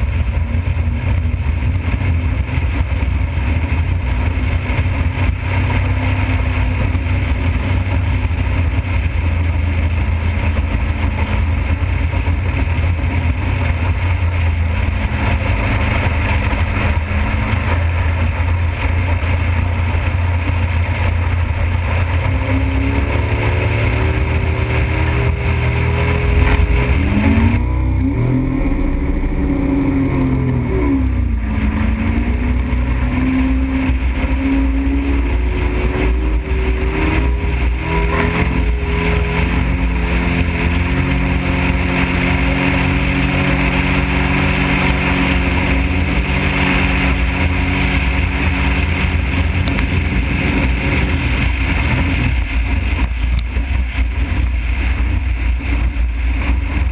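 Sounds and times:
motorboat engine drone: 0.0 - 56.9
rush of wind and water: 0.0 - 56.9.

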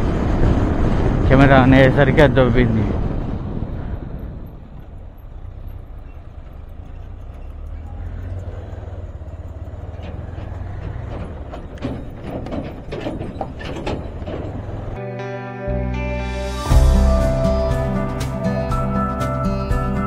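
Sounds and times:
motorcycle engine drone: 0.0 - 15.1
road and wind noise: 0.0 - 20.0.

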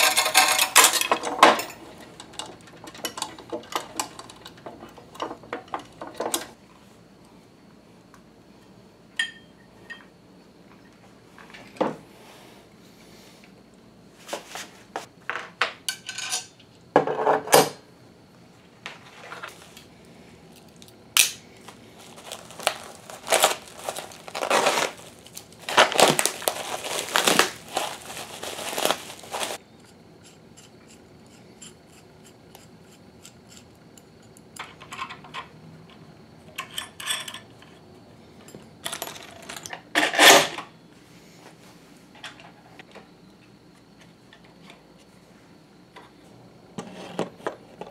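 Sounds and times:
metal hardware clinking: 0.0 - 6.5
bubble wrap crinkling and tearing: 21.7 - 29.6.

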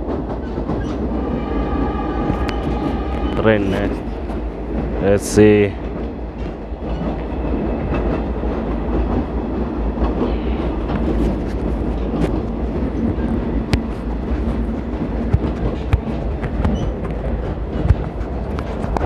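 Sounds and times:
train rumbling: 0.0 - 19.0.

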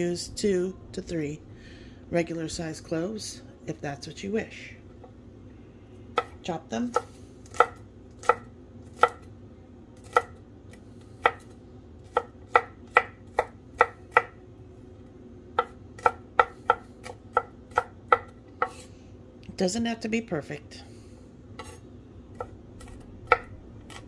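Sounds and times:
knife chopping on wooden board: 6.2 - 9.2, 11.2 - 14.4, 15.6 - 18.8, 21.6 - 24.0.

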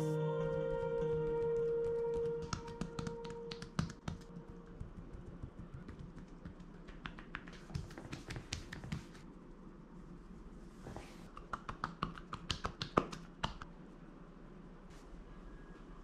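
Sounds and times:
soft background music: 0.0 - 6.6
hands slapping and tapping skin: 1.5 - 9.2, 11.3 - 13.7.

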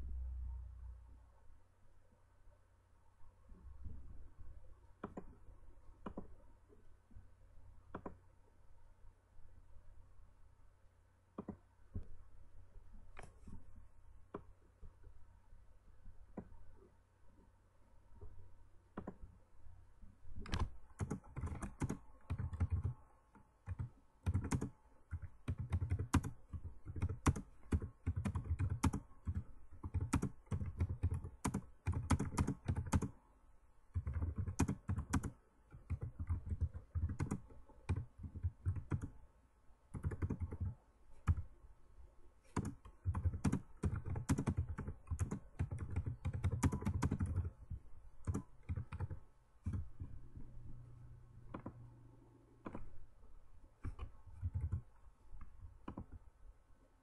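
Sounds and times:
keyboard keystroke clicks: 6.0 - 6.3, 23.7 - 33.1, 34.0 - 39.1, 42.5 - 47.5, 48.2 - 50.1, 52.6 - 52.9, 53.8 - 54.8.

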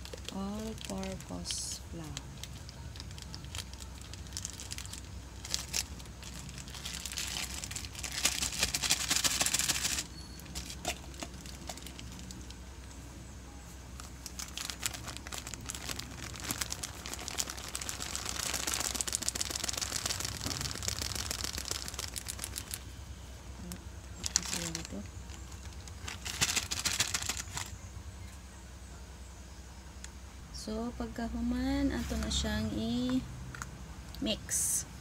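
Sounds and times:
flour packet crinkling: 0.0 - 12.6, 14.0 - 22.9, 23.6 - 27.8.

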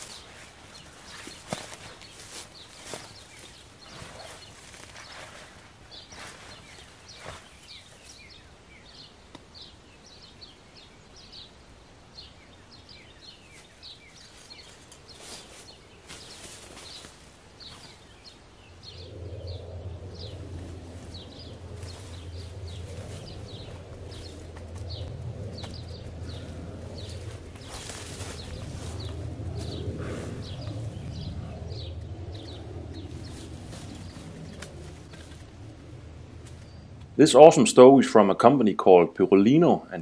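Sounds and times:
footsteps on forest floor: 0.0 - 8.4, 13.5 - 18.2, 20.5 - 30.6, 32.4 - 35.7
small birds chirping: 0.0 - 40.0
steady low rumble: 12.9 - 40.0.

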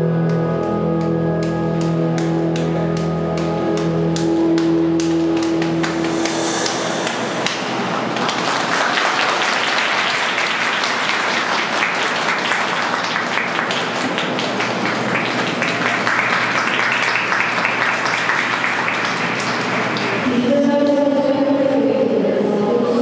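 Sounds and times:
program music: 0.0 - 8.8
audience applauding: 3.4 - 20.3.

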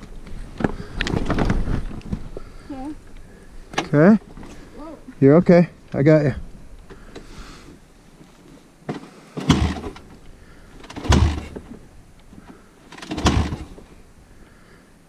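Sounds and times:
dirt bike kick-start: 8.8 - 13.9
engine turning over briefly: 9.4 - 10.1, 10.8 - 11.6, 12.9 - 13.8.

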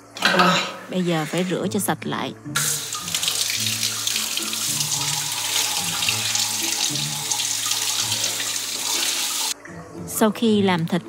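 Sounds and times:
tap water splashing into sink: 2.6 - 9.6.

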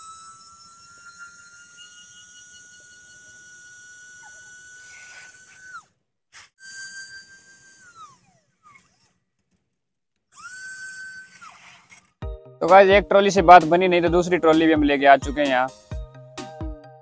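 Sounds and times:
small electric motor whining: 0.0 - 9.6, 10.3 - 12.2.

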